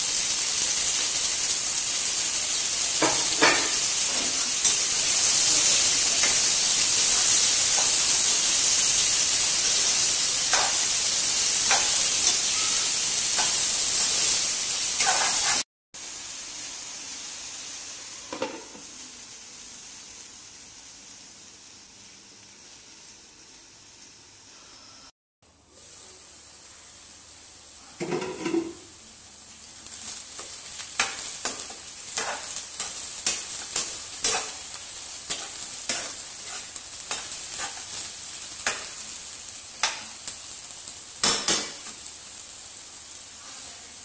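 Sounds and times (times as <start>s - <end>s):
meat and onions sizzling in a pan: 0.0s - 44.0s
spatula scraping and tapping a pan: 10.5s - 11.0s, 11.6s - 12.7s, 15.0s - 15.6s, 30.4s - 34.7s, 35.3s - 38.0s, 38.6s - 39.0s, 39.8s - 40.1s.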